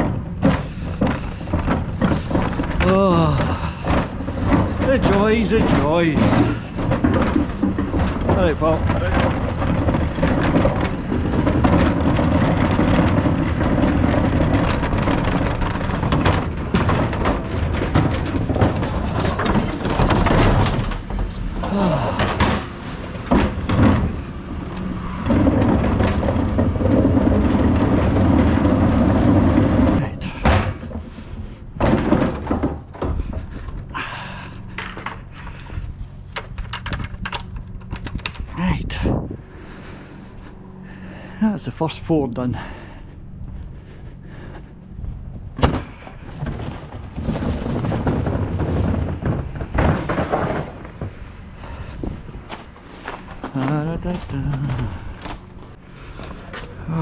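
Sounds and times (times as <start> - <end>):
rough rumbling clatter: 0.0 - 57.0
engine and hydraulics drone: 33.3 - 47.3, 50.6 - 57.0
footsteps on paving and gravel: 51.2 - 56.9.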